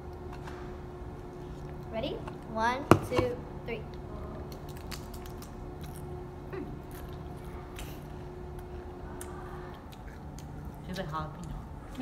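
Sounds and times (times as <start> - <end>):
faint steady hum: 0.0 - 12.0
people crunching crisps: 4.5 - 6.1, 6.8 - 10.8.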